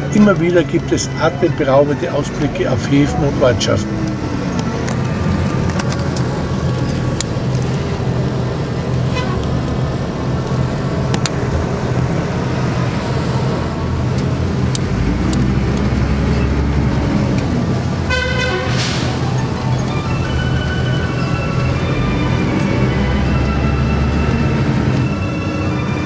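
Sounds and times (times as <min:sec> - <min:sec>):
bus engine and road noise: 0:00.0 - 0:26.0
rattles and clicks: 0:04.0 - 0:12.1
bus horn blast: 0:09.0 - 0:09.6, 0:18.0 - 0:19.2.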